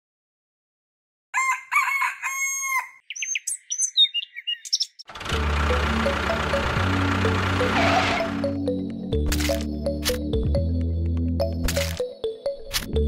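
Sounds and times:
rooster crowing: 1.3s - 3.0s
small birds chirping: 3.0s - 5.1s
music: 5.2s - 13.0s.

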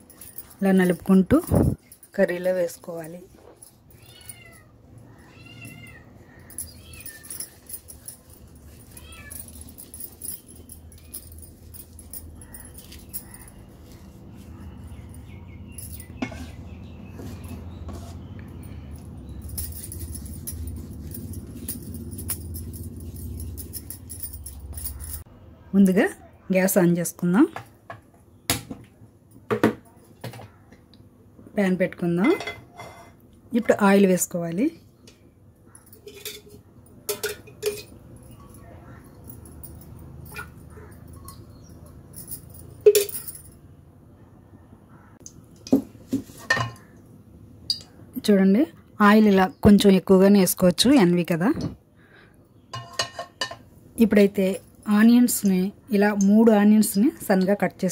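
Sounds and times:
spoon clinking in steel pot: 36.0s - 38.0s, 52.7s - 53.6s.

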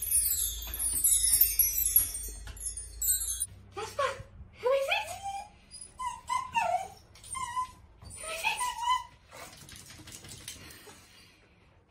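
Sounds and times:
dog whining and whimpering: 4.8s - 9.3s.

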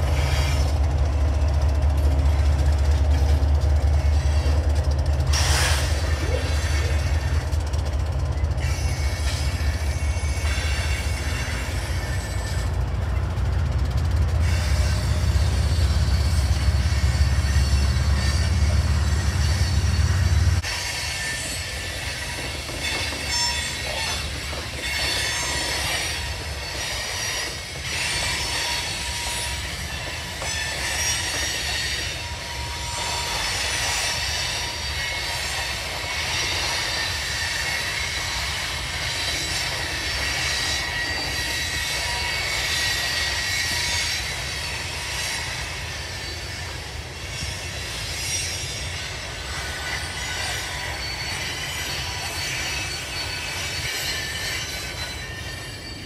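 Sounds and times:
train wheels rumbling on rail: 0.0s - 56.0s
high-pitched wheel squeal: 8.4s - 12.8s, 14.4s - 56.0s.

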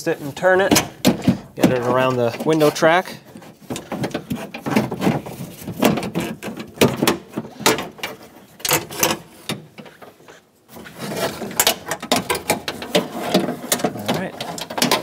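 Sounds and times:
door latch knocking and rattling: 0.6s - 2.0s.

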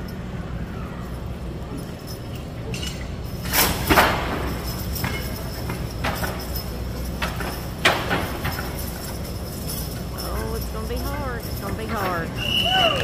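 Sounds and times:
steady low hum: 0.0s - 13.0s
chains snapping taut: 1.8s - 12.2s
sharp metal clanks: 1.9s - 12.6s
loud clatter: 2.9s - 12.6s.

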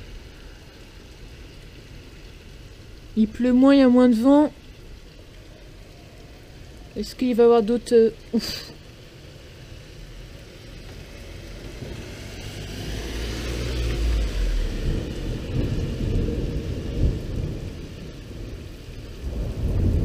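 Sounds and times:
rain falling: 0.0s - 20.0s
rolling thunder: 11.6s - 20.0s.

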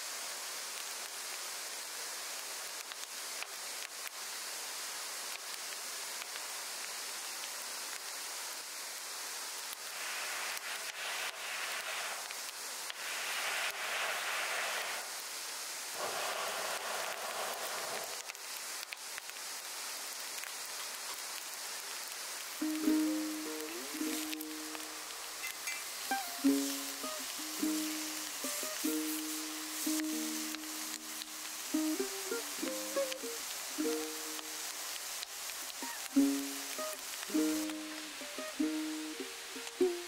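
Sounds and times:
fire crackling: 0.0s - 40.0s
steak sizzling in a skillet: 9.5s - 40.0s.

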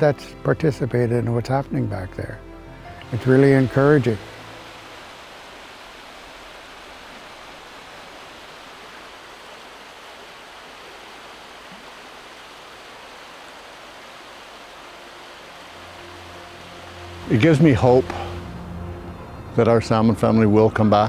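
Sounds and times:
river rushing over rocks: 3.0s - 18.8s.

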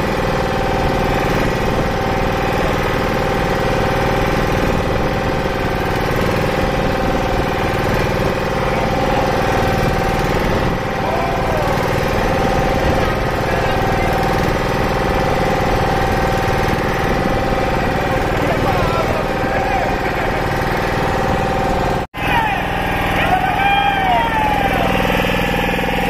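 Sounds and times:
boat motor running: 0.0s - 26.0s
water splashing along hull: 0.0s - 26.0s.

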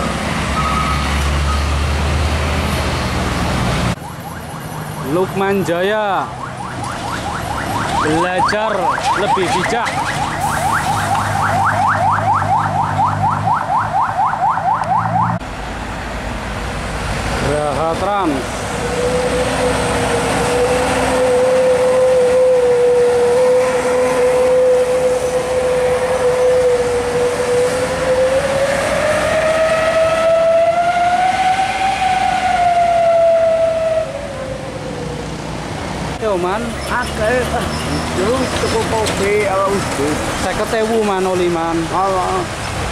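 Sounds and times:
road traffic noise: 0.0s - 42.9s
truck engine humming: 0.0s - 42.9s
electronic siren whooping: 6.1s - 15.4s, 18.8s - 35.2s.

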